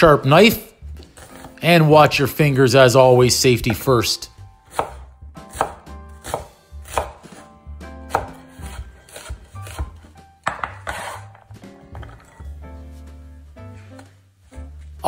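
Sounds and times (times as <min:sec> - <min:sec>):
soft background music: 0:00.0 - 0:15.0
knife chopping on wooden board: 0:04.7 - 0:12.3
onion scraped off board: 0:08.1 - 0:10.0, 0:10.6 - 0:11.4.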